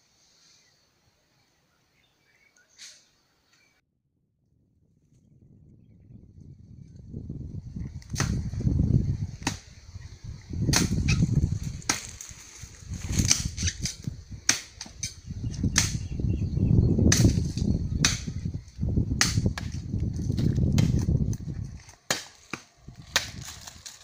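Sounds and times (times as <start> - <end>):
blade chopping undergrowth: 8.0 - 8.6, 10.7 - 16.0, 19.2 - 24.0.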